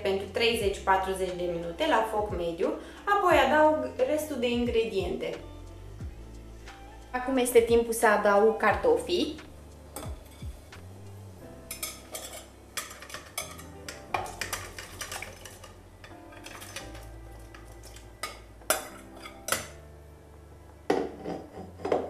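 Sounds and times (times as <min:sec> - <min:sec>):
soft background music: 0:00.0 - 0:22.0
spoon clinking on glass bowl: 0:11.7 - 0:15.6
ladle knocking in pot: 0:11.7 - 0:19.8.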